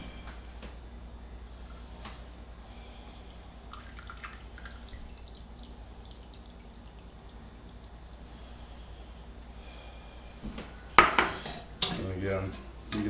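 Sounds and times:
syrup dripping into pot: 3.3 - 8.3.

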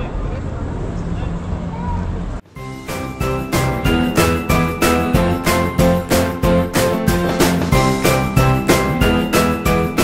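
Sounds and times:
music with struck pitched notes: 2.6 - 10.0.

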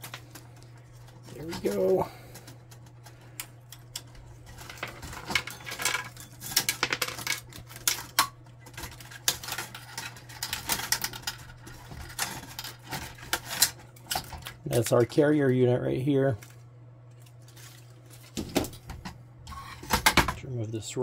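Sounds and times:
plastic parts clicking and rattling: 0.0 - 15.0.

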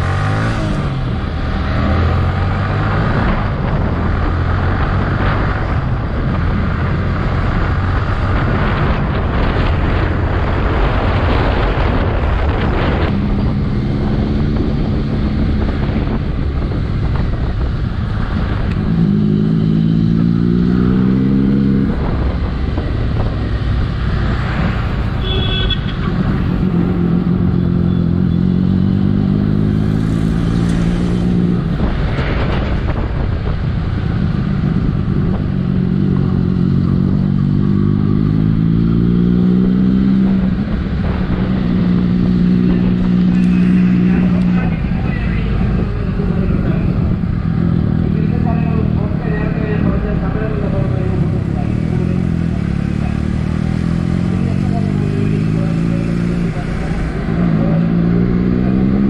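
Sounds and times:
wind rushing: 0.0 - 25.2, 29.3 - 48.2
motorcycle engine accelerating: 0.0 - 59.0.

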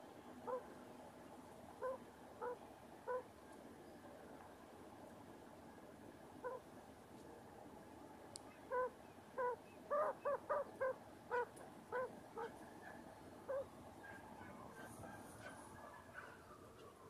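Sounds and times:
quail hen clucking: 8.6 - 12.6.

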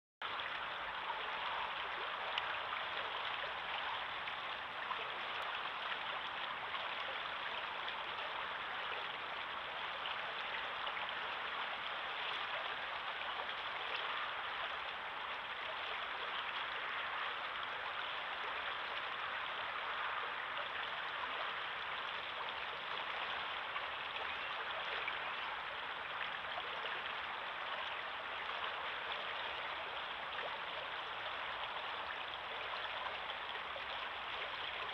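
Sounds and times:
river water flowing: 0.2 - 34.9.

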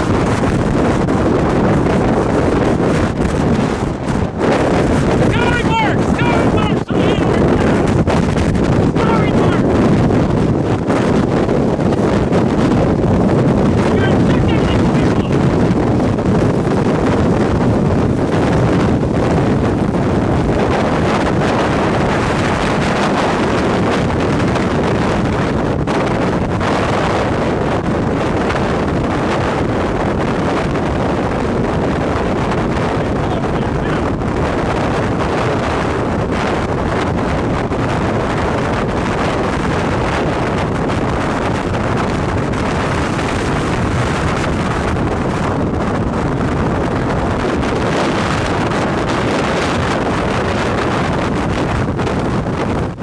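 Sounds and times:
wind on microphone: 0.0 - 53.0.

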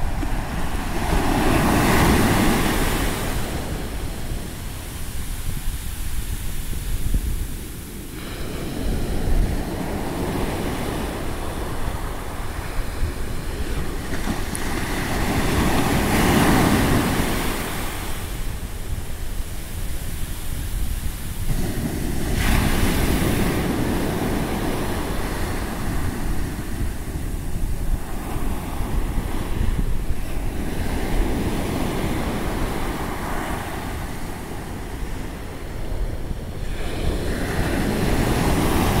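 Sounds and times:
surf washing up a beach: 0.0 - 39.0
wind rumble on microphone: 0.0 - 39.0.

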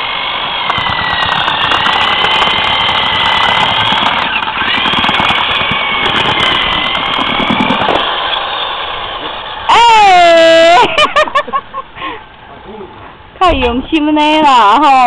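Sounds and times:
electric paddle mixer whining: 0.0 - 11.3.

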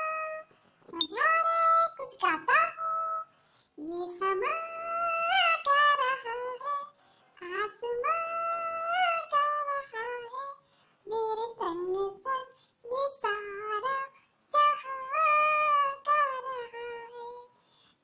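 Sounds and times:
high-pitched voice singing: 0.0 - 17.6.

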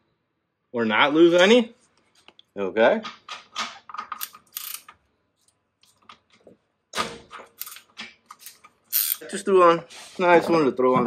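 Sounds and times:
ratchet clicking and knocking: 3.1 - 4.9, 7.4 - 9.2.

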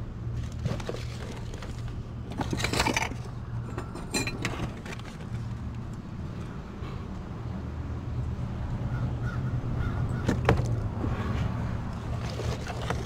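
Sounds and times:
rubbish rustling and clattering: 0.3 - 5.8, 12.0 - 13.0.

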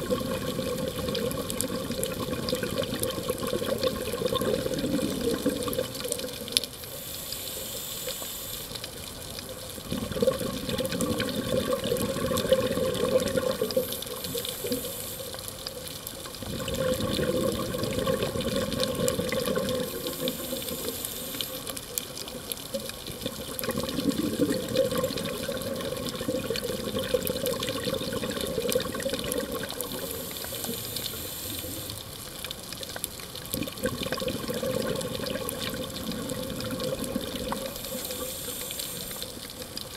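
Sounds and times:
exhaled bubbles rushing: 0.0 - 6.7, 9.8 - 14.9, 16.3 - 21.5, 22.8 - 32.0, 33.4 - 39.9
regulator inhale hiss: 6.8 - 8.9, 13.7 - 15.4, 19.8 - 21.8, 29.9 - 32.0, 37.7 - 39.5.

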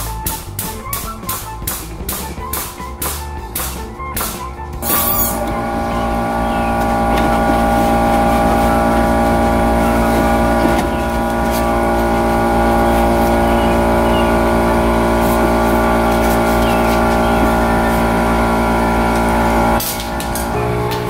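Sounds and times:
hydraulic pump motor droning: 4.8 - 21.0.

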